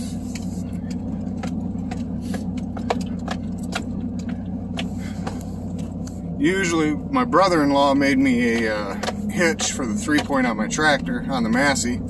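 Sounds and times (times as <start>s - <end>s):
clicks and rattles in cab: 0.0s - 12.0s
truck engine at low revs: 0.0s - 12.0s.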